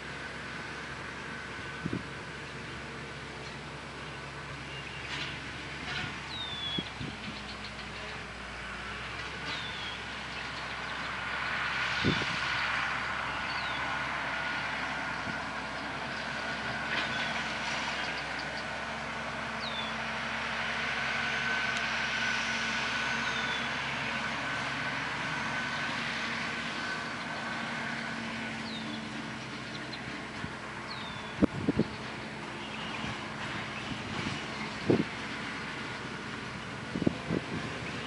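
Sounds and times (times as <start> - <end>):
tractor diesel engine under load: 0.0 - 38.0
bird chirping: 6.3 - 7.9, 30.9 - 34.6.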